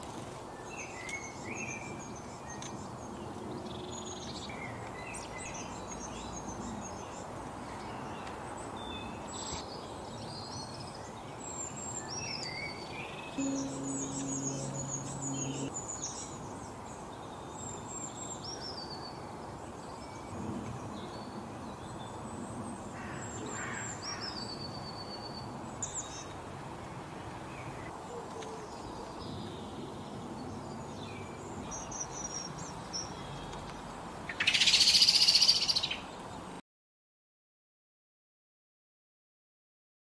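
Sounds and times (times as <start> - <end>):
birds chirping and singing: 11.4 - 16.3.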